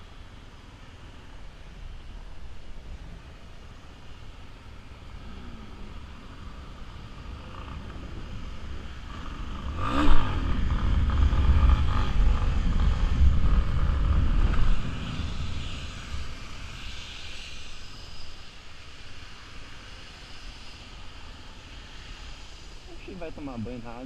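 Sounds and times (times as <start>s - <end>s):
motorcycle engine revving: 5.1s - 16.7s.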